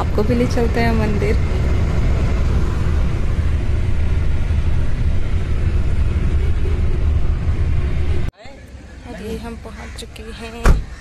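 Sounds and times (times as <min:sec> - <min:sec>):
car interior road rumble: 0:00.0 - 0:09.0.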